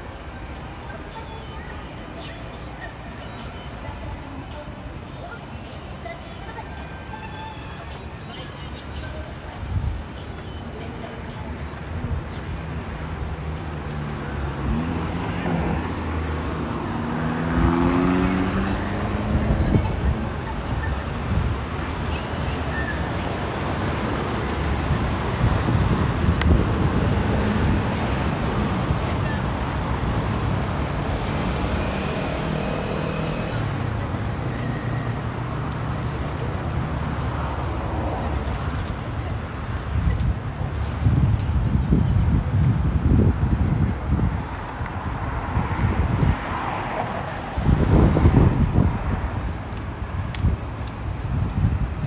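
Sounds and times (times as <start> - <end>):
traffic background: 0.0 - 52.0
vehicle engine passing: 14.0 - 19.7.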